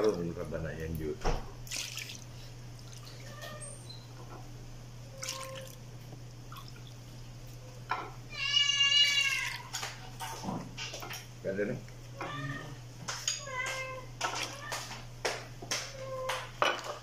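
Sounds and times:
steady low hum: 0.0 - 9.3
cat meowing: 5.1 - 5.8, 8.3 - 9.8, 12.2 - 12.8.

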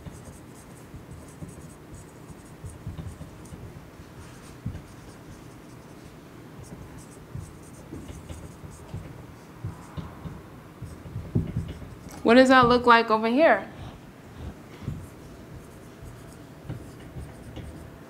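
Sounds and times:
marker squeaking on whiteboard: 0.0 - 3.7, 6.6 - 12.3, 14.9 - 17.9.

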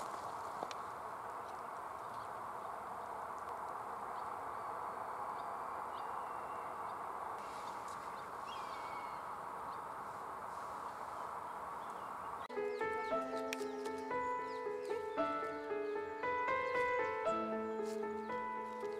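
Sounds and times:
falling whistled bird call: 8.4 - 9.3.

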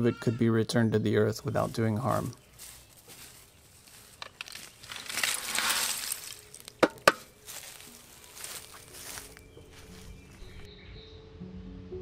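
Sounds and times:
light scraping and rustling: 2.2 - 10.7
sharp knocks: 6.8 - 7.3.

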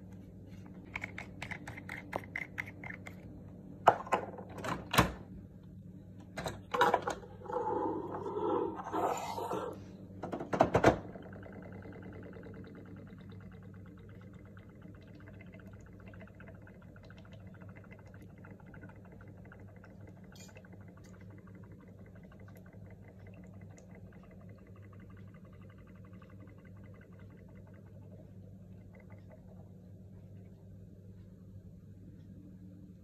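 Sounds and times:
steady low hum: 0.0 - 33.0
ink bubbling and gurgling: 7.2 - 9.8, 11.0 - 30.7.

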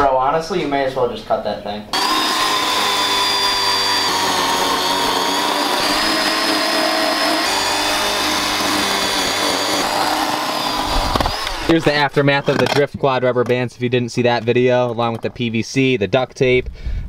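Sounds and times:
electric chainsaw cutting tire: 1.9 - 12.8.

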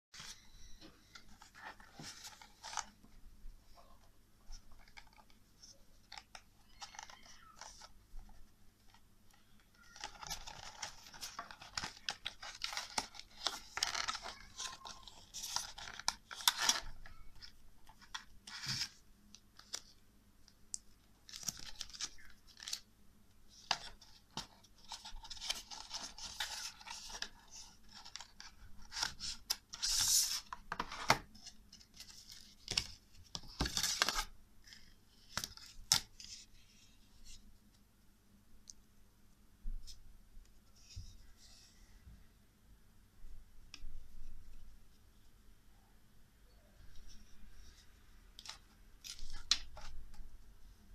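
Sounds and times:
plastic and cardboard box rustling: 23.7 - 34.3.

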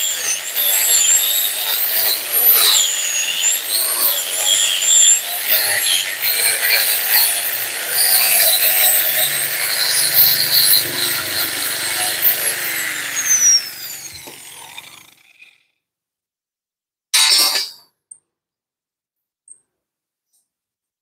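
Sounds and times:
power tool grinding metal: 0.0 - 15.6
power tool whine spinning down: 0.0 - 15.6.

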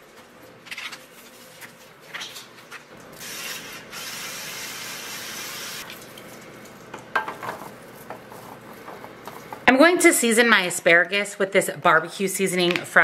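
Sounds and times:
cooking spray hissing: 3.2 - 5.9.

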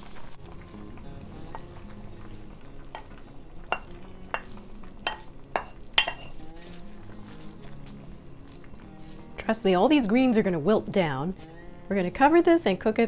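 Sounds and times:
wooden spoon knocking on a pot: 2.9 - 6.4.

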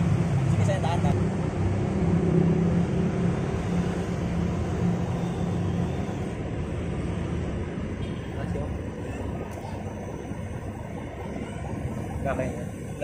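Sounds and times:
toy truck motors whirring: 3.3 - 7.3.

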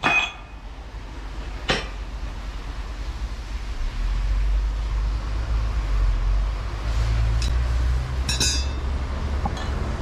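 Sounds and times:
metal clinks on steel bench: 0.0 - 0.5, 8.3 - 8.8.

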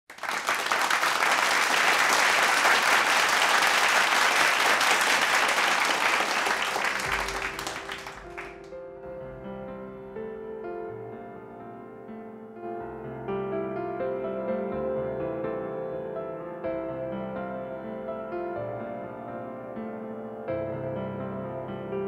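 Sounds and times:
studio audience applauding: 0.1 - 8.7
piano with low bass: 6.8 - 22.0.

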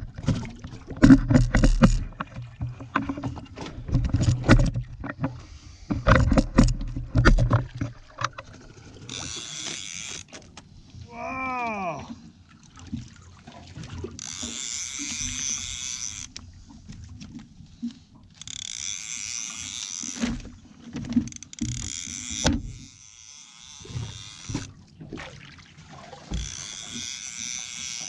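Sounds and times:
fishing reel whirring: 9.0 - 10.4, 14.2 - 16.5, 18.3 - 24.8, 26.3 - 28.0.

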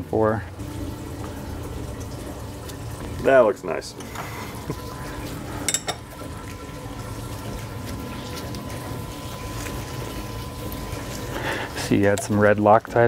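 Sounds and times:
workshop background noise: 3.1 - 6.3.

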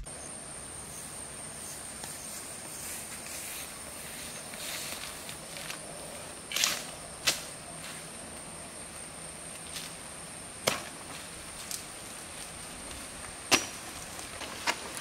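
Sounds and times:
banana leaves cracking off: 6.5 - 7.5, 10.6 - 15.0.

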